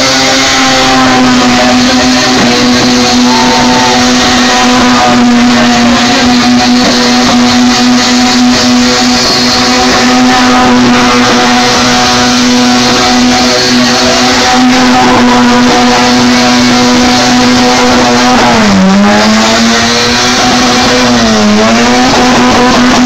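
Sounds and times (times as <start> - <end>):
car engine at high revs: 0.0 - 23.0.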